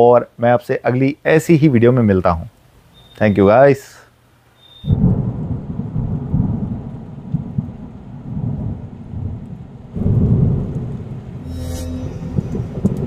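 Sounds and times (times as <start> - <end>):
low rolling thunder rumble: 4.9 - 11.5, 12.3 - 13.0.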